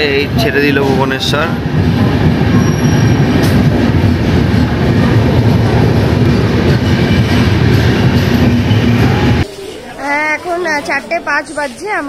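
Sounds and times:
train wheels rumbling on rails: 0.0 - 9.5.

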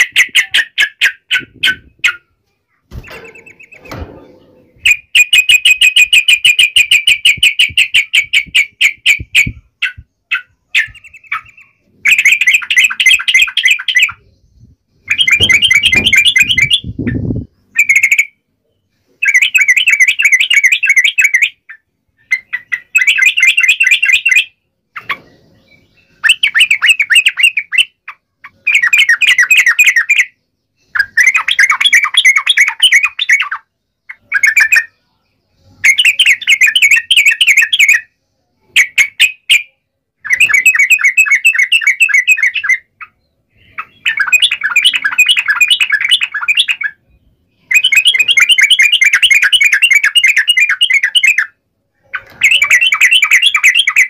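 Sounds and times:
bulbuls singing chattering phrases: 0.0 - 18.4, 38.7 - 54.0.

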